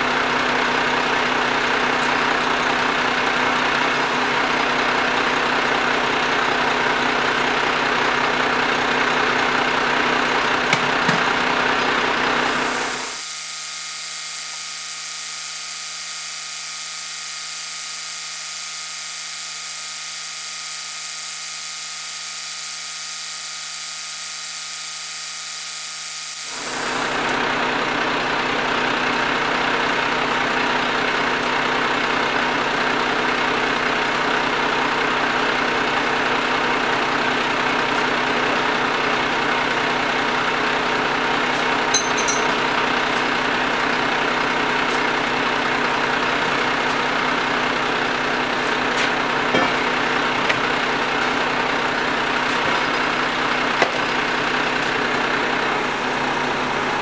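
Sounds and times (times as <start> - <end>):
truck engine idling: 0.0 - 13.1, 26.6 - 57.0.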